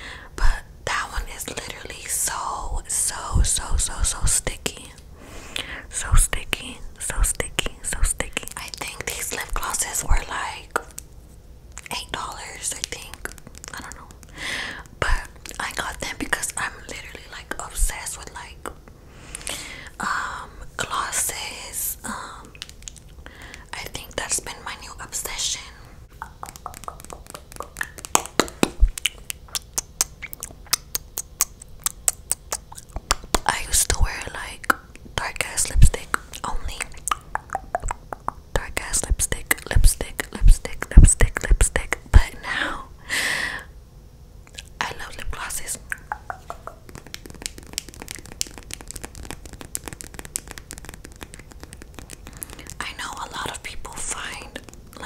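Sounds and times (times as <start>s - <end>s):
wet lips smacking: 11.8s - 16.2s, 22.5s - 23.6s, 26.2s - 35.0s, 35.8s - 38.9s, 44.5s - 55.0s.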